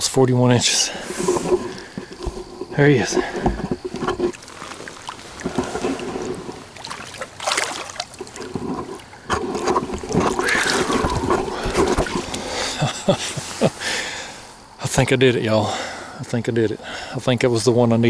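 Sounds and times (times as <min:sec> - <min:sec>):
water splashing against kayak: 0:00.9 - 0:13.8
handling knocks and rustles: 0:01.1 - 0:12.6.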